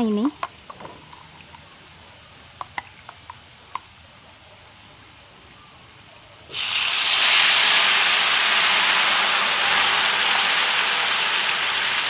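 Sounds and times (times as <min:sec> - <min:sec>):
batter sizzling in hot oil: 0:06.5 - 0:12.0.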